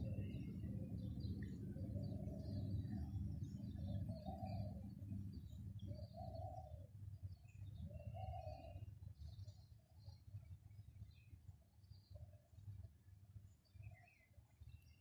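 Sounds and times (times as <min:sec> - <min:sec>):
steady low rumble: 0:00.0 - 0:05.8
small birds chirping: 0:00.0 - 0:15.0
dove cooing: 0:08.2 - 0:08.8.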